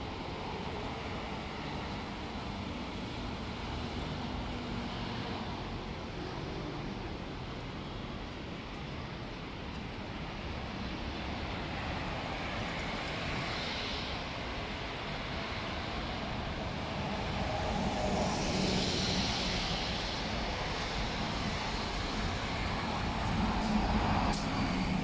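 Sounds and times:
cars passing: 12.3 - 25.0.

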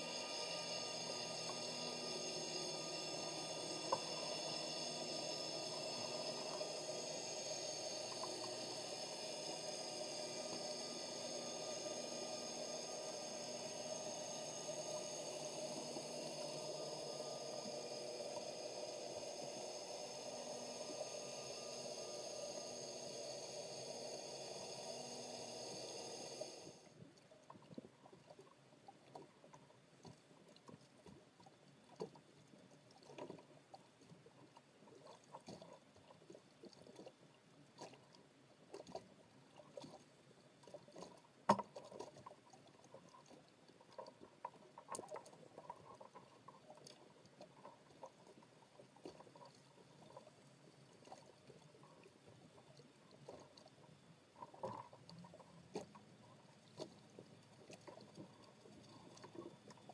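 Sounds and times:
underwater hiss: 0.0 - 26.9
irregular clicks and ticks: 2.5 - 11.2.

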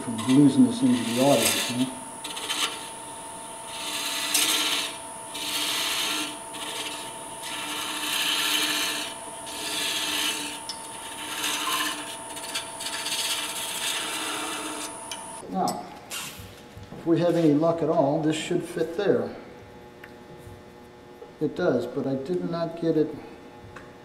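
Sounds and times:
turning tool scraping wood: 0.0 - 15.4
wood lathe whining: 0.0 - 15.4.

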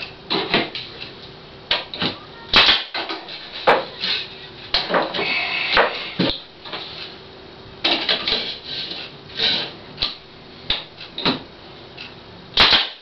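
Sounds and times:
nail gun firing into wood: 2.5 - 3.0, 12.6 - 13.0.

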